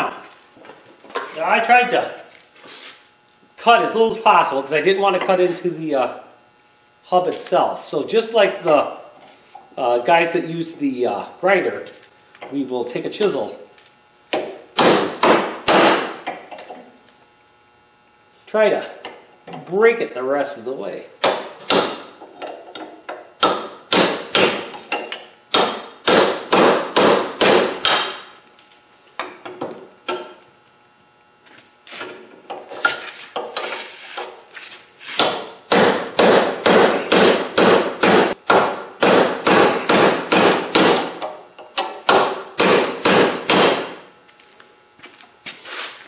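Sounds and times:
hammer striking chisel on metal: 0:14.3 - 0:16.8, 0:21.2 - 0:22.1, 0:22.8 - 0:28.3, 0:35.2 - 0:43.9.

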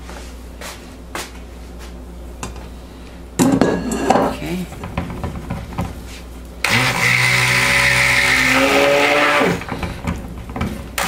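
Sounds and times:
stick blender motor humming: 0:06.6 - 0:11.0.

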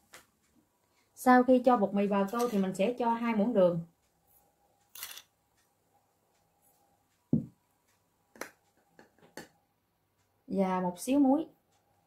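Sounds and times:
dull thump: 0:07.3 - 0:07.5.

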